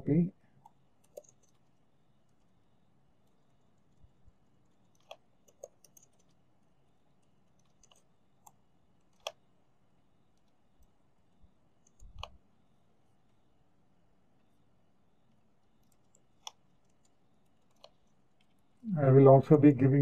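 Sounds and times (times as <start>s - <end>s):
keyboard keystrokes: 1.0s - 1.6s, 4.8s - 6.4s, 7.6s - 9.4s, 11.8s - 12.4s.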